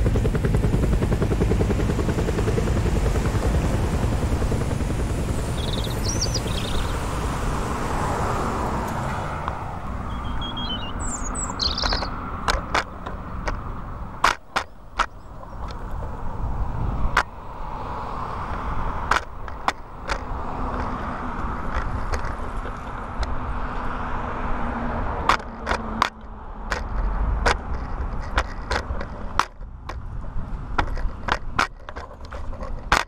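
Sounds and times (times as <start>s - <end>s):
road traffic tyre rush: 0.0s - 33.0s
sharp clicks and rattles: 11.4s - 16.1s, 21.6s - 23.3s, 25.3s - 30.0s, 30.8s - 33.0s.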